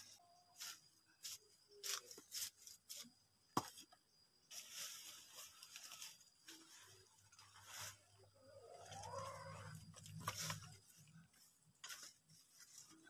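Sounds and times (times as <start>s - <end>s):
dry leaves rustling and crackling: 4.5s - 13.0s.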